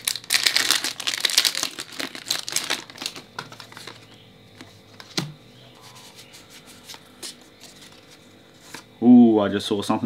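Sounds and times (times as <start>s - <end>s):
foil wrapper crinkling: 0.0s - 4.7s.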